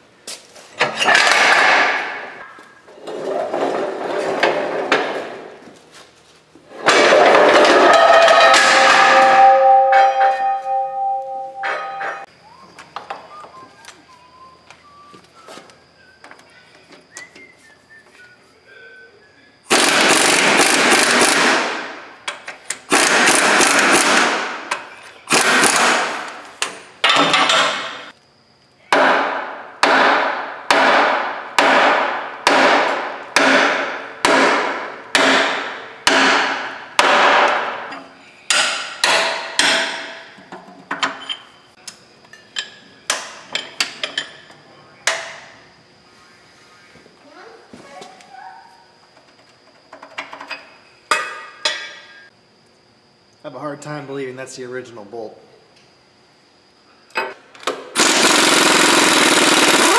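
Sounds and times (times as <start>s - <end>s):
pneumatic air tool chattering: 19.7s - 21.7s, 22.9s - 24.4s, 25.3s - 26.2s, 57.9s - 59.9s.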